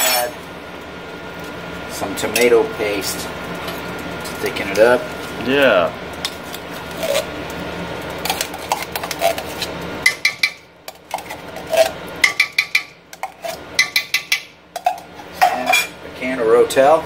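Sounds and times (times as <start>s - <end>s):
metal spoon scraping tin can: 8.2s - 15.9s
spoon clinking against can: 8.3s - 15.9s.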